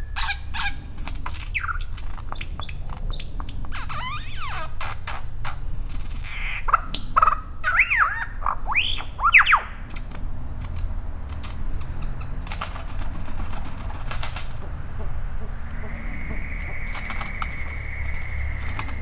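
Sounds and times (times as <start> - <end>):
scratchy bird calls: 0.0 - 19.0
bird clicks: 1.0 - 4.0, 8.7 - 19.0
bird swooping whistled notes: 14.7 - 19.0.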